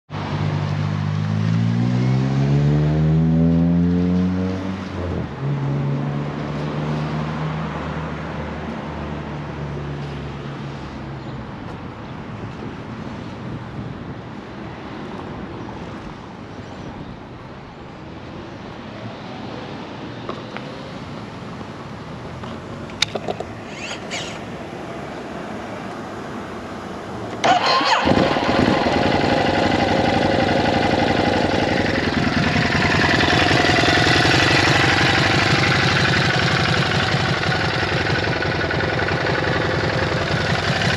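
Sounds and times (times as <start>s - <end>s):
motorcycle engine starting and idling: 23.0s - 24.5s, 27.3s - 40.9s.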